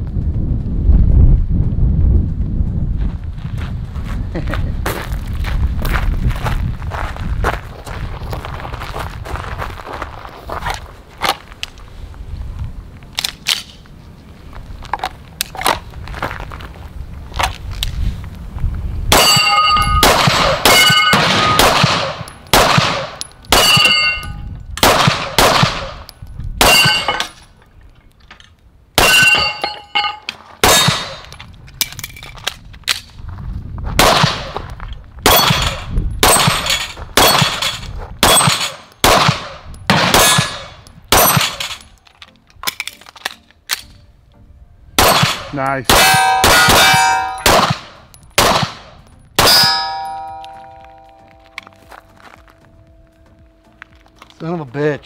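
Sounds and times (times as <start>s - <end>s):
pistol shots: 19.1s - 27.3s, 30.6s - 31.3s, 34.0s - 34.6s, 35.2s - 41.8s, 45.0s - 50.2s
steel plates clanging: 23.2s - 24.4s, 26.6s - 27.6s, 29.0s - 31.3s, 46.0s - 47.5s, 49.4s - 51.8s.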